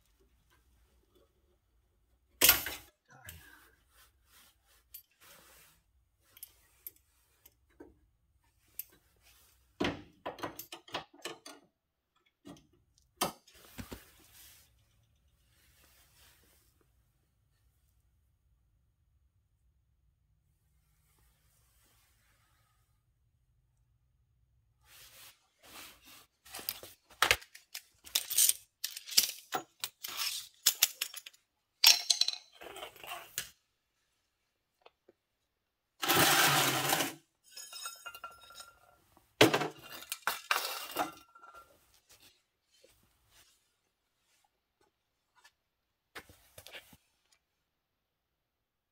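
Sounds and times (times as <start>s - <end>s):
hand tools and metal clinking: 2.4s - 3.5s, 26.5s - 33.5s, 36.0s - 42.2s
rustles and scrapes: 3.3s - 7.7s, 13.5s - 16.9s, 20.9s - 23.0s, 24.8s - 30.8s, 41.5s - 45.6s
tools clinking: 26.6s - 32.6s.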